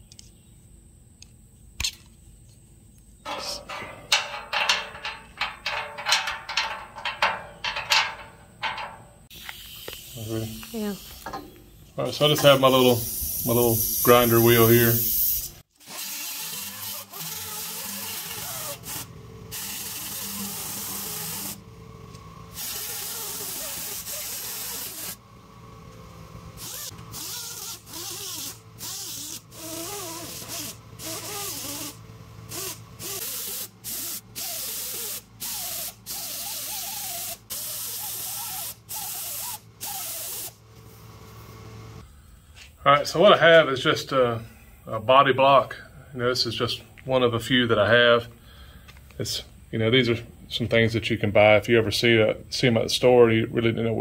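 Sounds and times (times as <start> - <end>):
grinding on steel: 3.3 - 9.3
pneumatic grinder hissing: 3.3 - 21.7, 22.4 - 25.2, 26.5 - 40.6.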